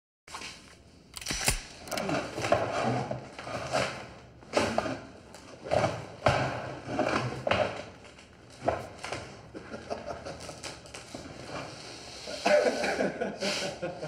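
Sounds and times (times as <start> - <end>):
sharp clicks: 1.1 - 2.0.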